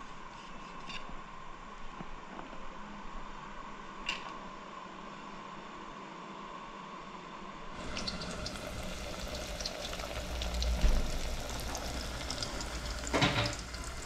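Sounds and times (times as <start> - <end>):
fish deep-frying in hot oil: 7.7 - 14.0.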